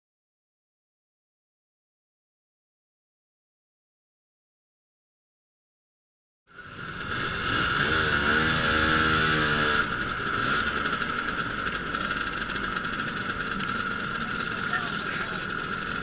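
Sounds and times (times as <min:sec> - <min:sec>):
motor scooter engine running: 0:06.5 - 0:16.0.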